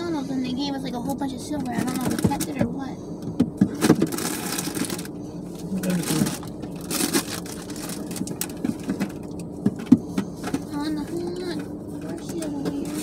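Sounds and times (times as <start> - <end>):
paper packaging rustling: 3.8 - 5.1, 5.8 - 9.3.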